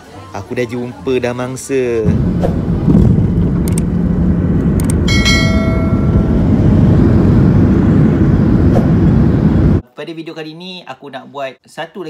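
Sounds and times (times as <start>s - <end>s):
jet engines rumbling in cabin: 1.8s - 9.8s
sharp clicks: 3.6s - 4.0s, 4.7s - 5.0s
bell ding: 5.1s - 6.5s.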